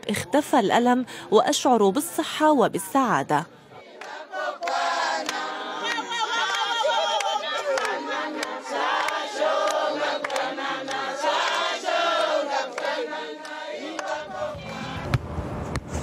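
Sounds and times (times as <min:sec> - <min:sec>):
group singing and chanting: 0:03.6 - 0:15.3.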